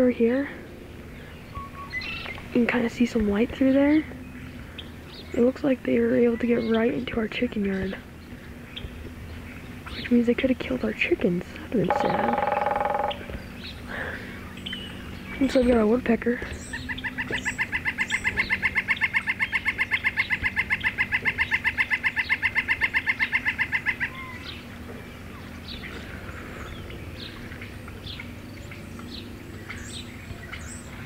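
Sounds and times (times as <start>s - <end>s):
small birds chirping: 0.0s - 31.0s
woodpecker rapid wick call: 11.8s - 13.8s, 16.6s - 24.6s.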